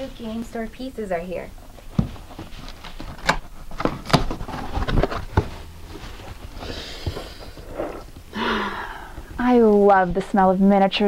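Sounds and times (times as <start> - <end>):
cardboard flaps rustling: 1.7 - 8.3.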